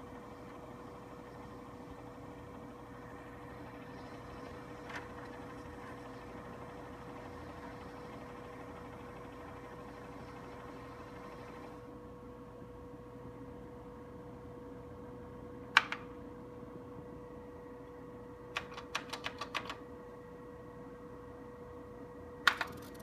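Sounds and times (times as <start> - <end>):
machine humming: 0.0 - 11.9.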